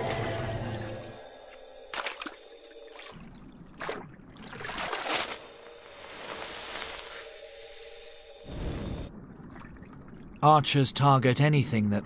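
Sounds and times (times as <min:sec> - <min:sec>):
water splashes: 0:01.9 - 0:05.4, 0:09.1 - 0:10.8.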